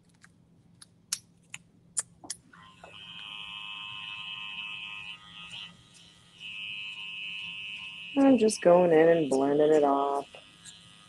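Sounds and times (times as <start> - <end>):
electric hair clipper buzzing: 2.5 - 11.0.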